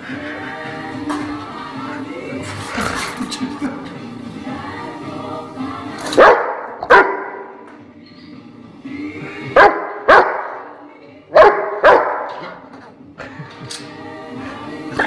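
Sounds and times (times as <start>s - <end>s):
background music: 0.0s - 15.0s
dog barking: 6.2s - 7.5s, 9.6s - 10.6s, 11.3s - 12.5s.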